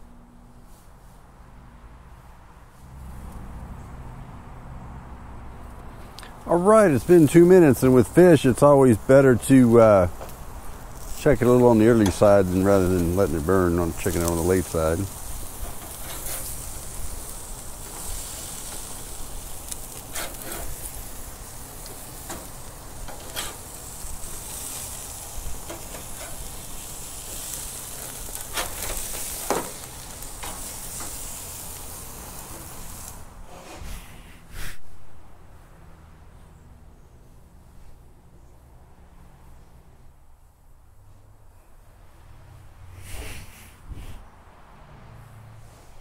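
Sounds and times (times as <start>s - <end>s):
fish sizzling on a grill: 6.5s - 33.4s
metal spatula scraping grill grates: 6.9s - 34.8s
grill lid shutting: 28.1s - 31.2s.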